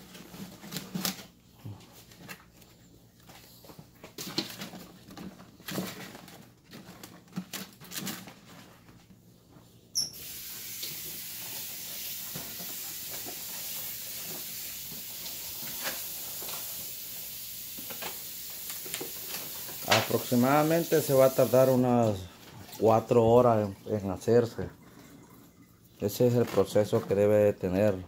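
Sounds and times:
tap water running into sink: 0:10.2 - 0:21.8.

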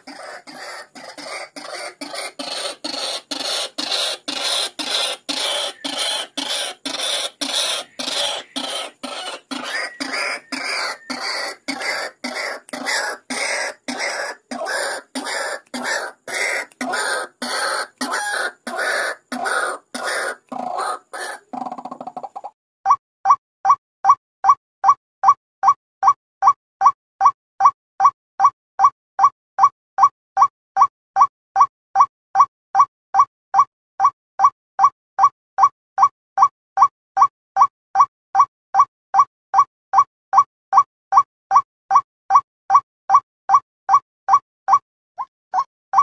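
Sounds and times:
waterhen calls: 0:00.0 - 0:22.5.

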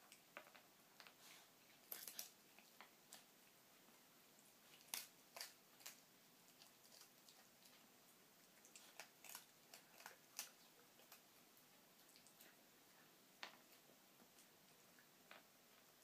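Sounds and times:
dog crunching dry kibble: 0:00.1 - 0:03.3, 0:04.6 - 0:11.3.

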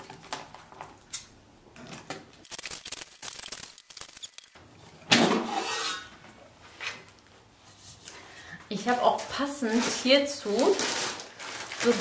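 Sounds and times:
plastic film ripping: 0:02.4 - 0:04.6, 0:09.7 - 0:12.0
plastic wrap crinkling: 0:02.4 - 0:04.6, 0:08.8 - 0:12.0.

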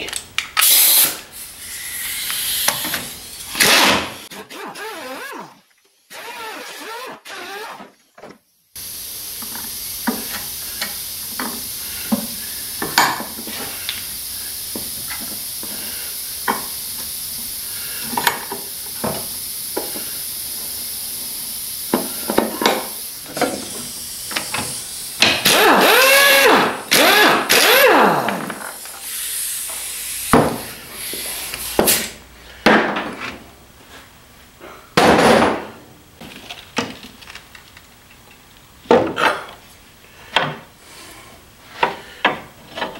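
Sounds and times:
pneumatic impact wrench: 0:00.6 - 0:08.0, 0:08.8 - 0:32.2
steady hiss: 0:08.7 - 0:25.2, 0:28.7 - 0:32.5.

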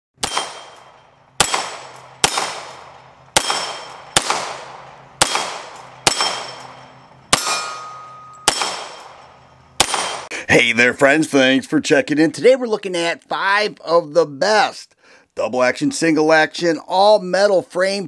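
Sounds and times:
pistol shots with echo: 0:00.2 - 0:10.3.

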